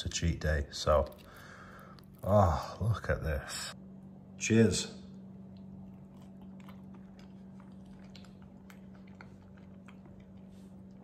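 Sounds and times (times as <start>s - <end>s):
low hum: 0.0s - 11.0s
faint chewing: 0.9s - 2.8s, 5.2s - 11.0s.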